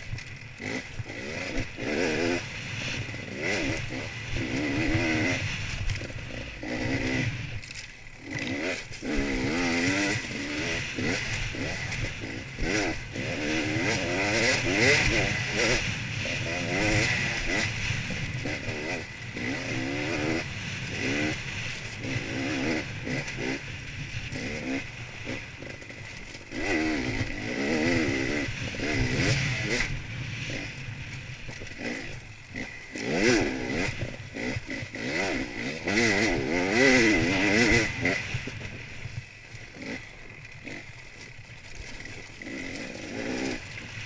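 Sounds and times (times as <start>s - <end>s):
motorcycle engine revving: 0.0s - 44.0s.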